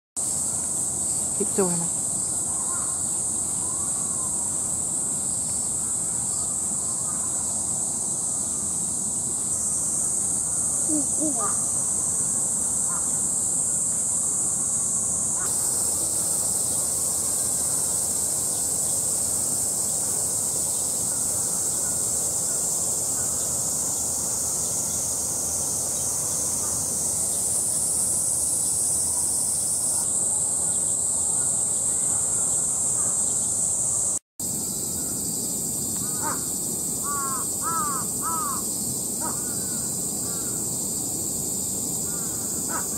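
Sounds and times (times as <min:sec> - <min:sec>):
cicada chorus drone: 0:00.2 - 0:42.9
crows cawing: 0:36.0 - 0:38.6, 0:39.2 - 0:40.6, 0:42.1 - 0:42.9.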